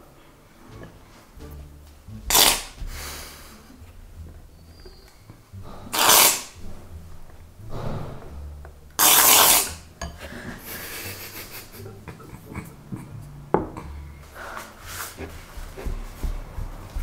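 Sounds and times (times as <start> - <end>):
aerosol foam spray hissing: 2.3 - 2.9, 5.9 - 6.5, 9.0 - 9.8.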